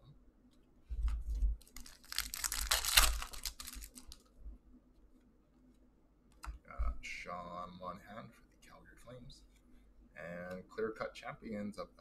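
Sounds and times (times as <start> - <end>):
foil wrapper tearing and crinkling: 1.6 - 4.2.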